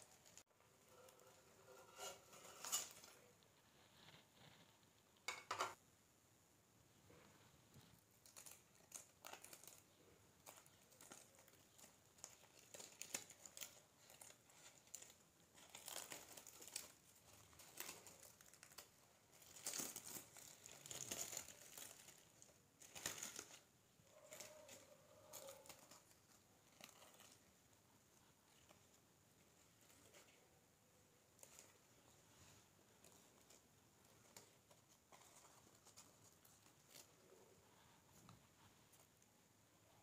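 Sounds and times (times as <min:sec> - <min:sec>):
leaf parcel crinkling and tearing: 0:08.1 - 0:27.6, 0:31.4 - 0:39.0.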